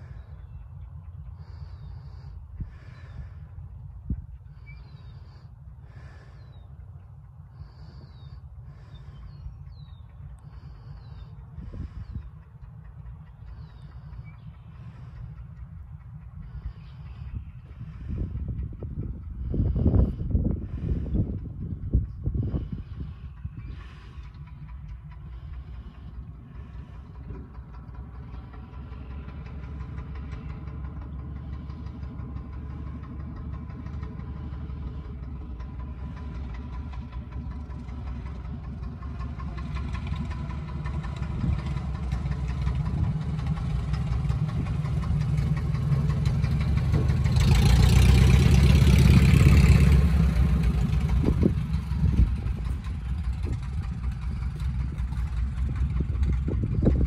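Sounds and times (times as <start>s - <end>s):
light airplane engine and propeller: 0.0s - 57.0s
propeller wash rush: 7.5s - 57.0s.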